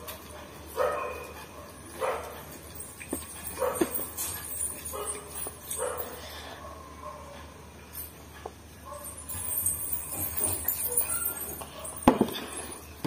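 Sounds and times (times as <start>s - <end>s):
dog barking: 0.8s - 2.4s.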